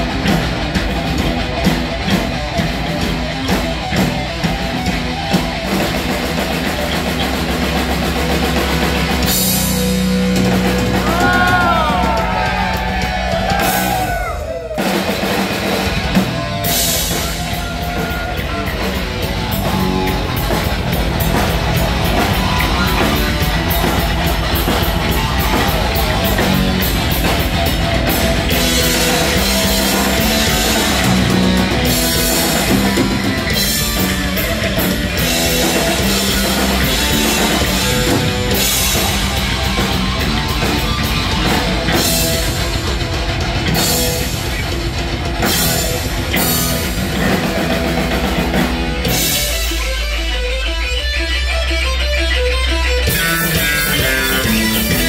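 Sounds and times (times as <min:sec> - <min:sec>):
drum kit with crashing cymbals: 0:00.0 - 0:50.2
distorted electric guitar: 0:00.0 - 0:55.0
heavy metal band playing: 0:00.0 - 0:55.0.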